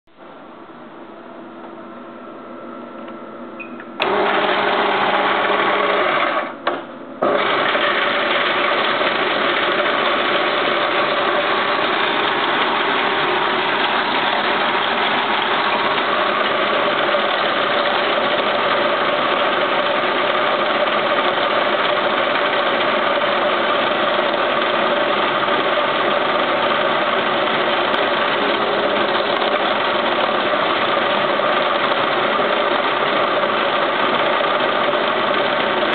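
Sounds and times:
faint hum: 0.1s - 4.0s
coin sorter running: 4.0s - 6.6s, 7.2s - 35.9s.

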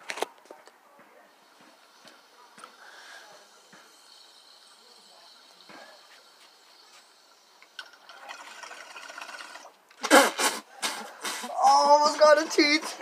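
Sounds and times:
water bubbling in a bong: 7.7s - 9.7s.

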